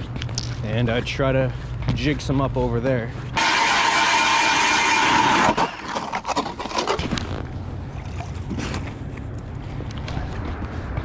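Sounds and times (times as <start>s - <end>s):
footsteps on ice: 0.0s - 11.0s
ice auger motor whine: 3.4s - 6.8s.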